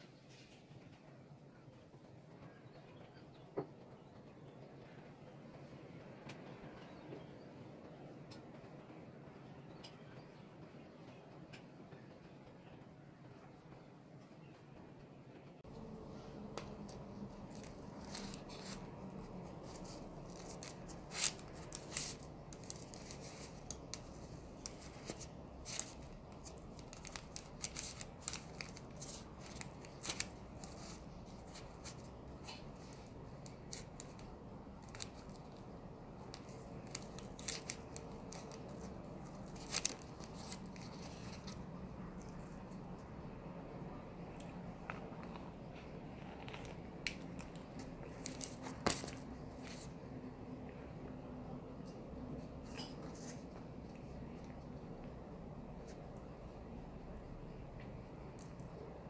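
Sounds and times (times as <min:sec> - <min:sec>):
baking paper crackling: 0:15.6 - 0:43.1, 0:44.8 - 0:50.1
pastry tops crackling: 0:15.6 - 0:51.2.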